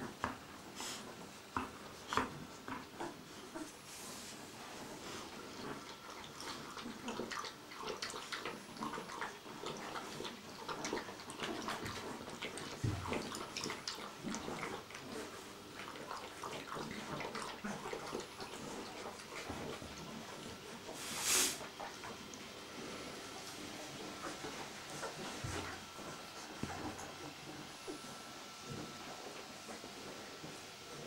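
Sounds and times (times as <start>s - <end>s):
puppy lapping water from bowl: 5.2s - 21.0s.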